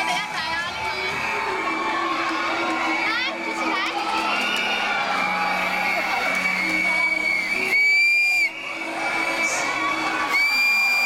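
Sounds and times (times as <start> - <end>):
crowd cheering: 0.0 - 11.0
high-pitched screams: 4.0 - 11.0.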